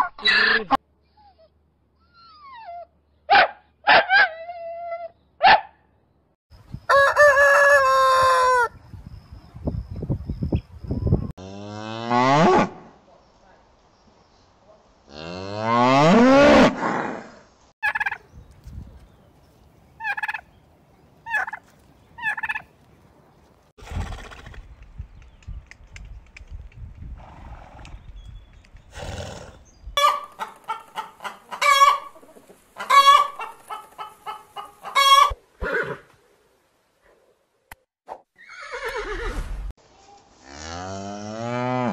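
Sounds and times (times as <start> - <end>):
chickens calling: 6.6 - 8.9, 17.8 - 18.3, 20.0 - 20.5, 21.2 - 22.7, 29.9 - 35.4
turkey calling: 17.8 - 18.2, 20.0 - 20.5, 21.2 - 21.6, 22.2 - 22.7, 30.0 - 35.4.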